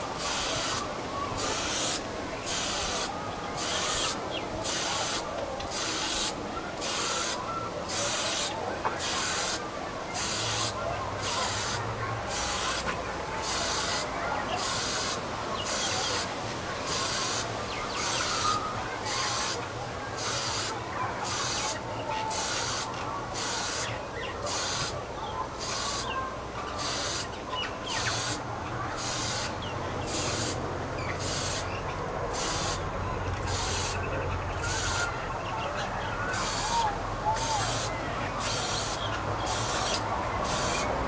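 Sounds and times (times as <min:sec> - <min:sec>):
spray-paint can hissing: 0:01.4 - 0:07.4, 0:10.2 - 0:16.3, 0:24.5 - 0:24.9, 0:26.8 - 0:27.3, 0:28.0 - 0:28.4, 0:29.0 - 0:29.5, 0:30.1 - 0:30.6, 0:31.2 - 0:31.7, 0:32.4 - 0:32.8, 0:33.5 - 0:34.0, 0:37.4 - 0:40.9.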